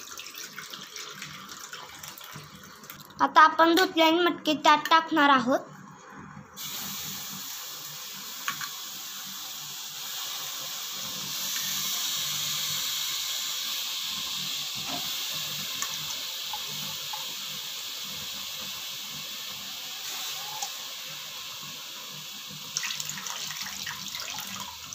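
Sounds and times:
beans sizzling in hot oil: 0:06.6 - 0:24.9.

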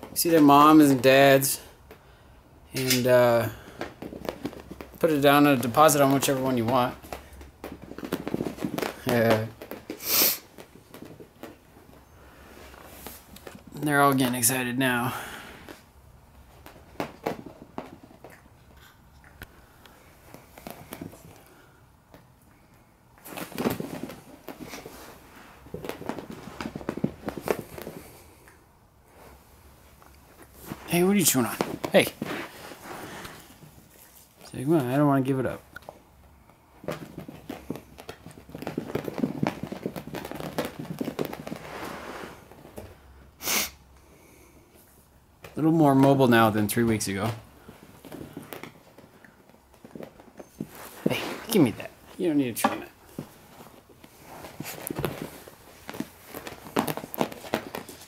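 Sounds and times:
soft rustling: 0:00.0 - 0:43.3, 0:43.9 - 0:58.0
light knocks and scrabbling: 0:02.8 - 0:14.4, 0:36.8 - 0:41.9
puppies scuffling on carpet: 0:03.0 - 0:43.2, 0:44.3 - 0:58.0.

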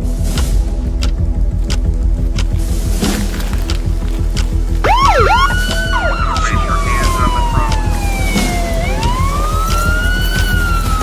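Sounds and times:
music with steady beat: 0:00.0 - 0:11.0
emergency vehicle siren: 0:04.8 - 0:11.0.

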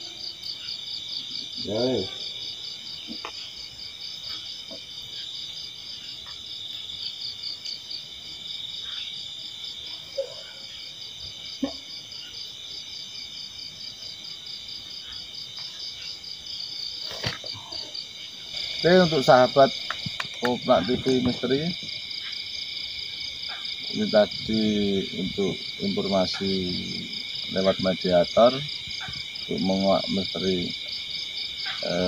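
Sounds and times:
insects trilling: 0:00.0 - 0:32.0.

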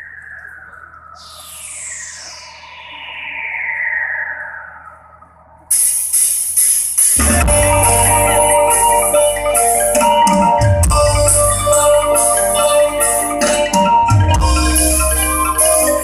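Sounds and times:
band playing with bass and drums: 0:07.2 - 0:16.0.

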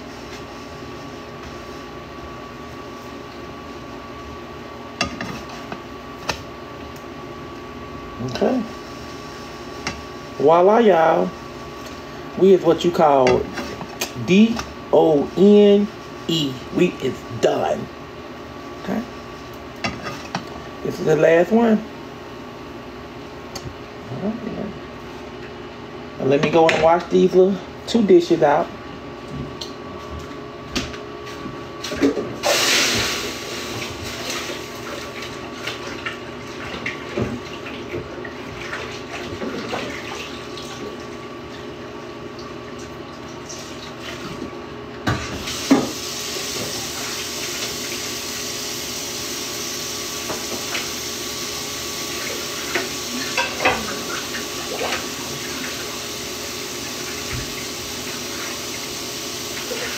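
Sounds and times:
tap water running: 0:32.1 - 0:59.9.

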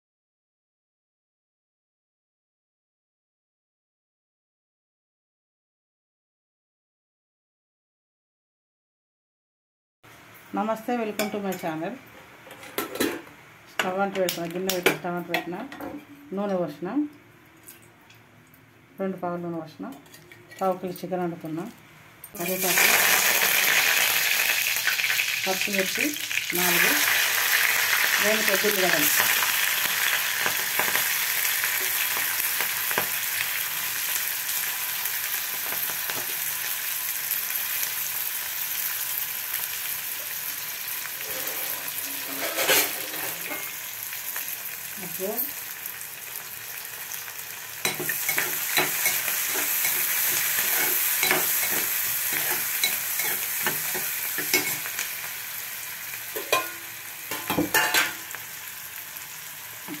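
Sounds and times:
onions sizzling in hot oil: 0:22.3 - 1:00.0
spoon scraping a pot: 0:41.2 - 0:43.8, 0:47.9 - 0:54.9.

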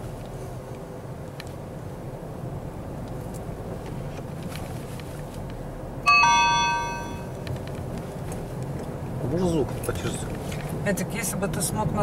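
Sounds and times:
car engine and road noise: 0:00.0 - 0:12.0
two-note chime: 0:06.1 - 0:07.4.

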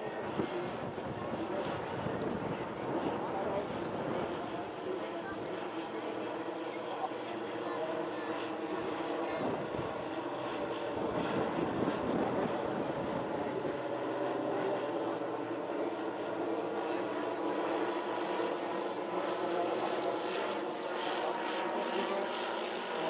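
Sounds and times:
model engines running: 0:00.0 - 0:23.0.

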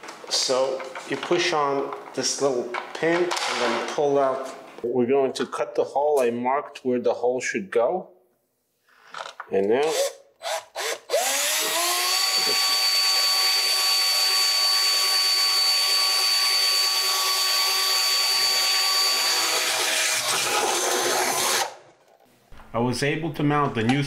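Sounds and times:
cordless drill whining: 0:09.8 - 0:21.7.

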